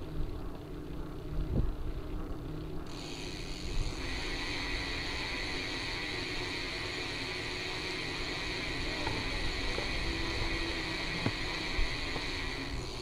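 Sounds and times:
steady high hiss: 2.9 - 13.0
wind and road rumble: 3.6 - 13.0.

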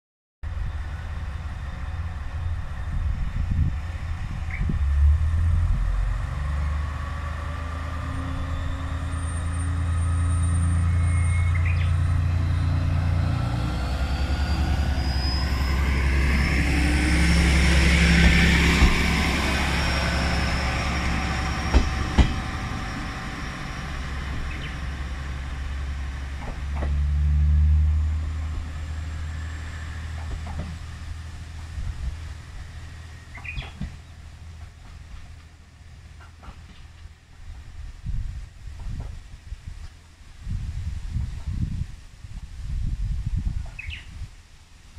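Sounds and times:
diesel railcar engine: 0.4 - 44.9
rising whine: 0.5 - 35.5.

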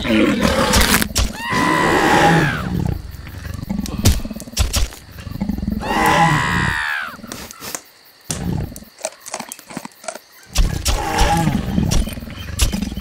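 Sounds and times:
dinosaur roar: 0.0 - 4.3, 5.3 - 7.2.

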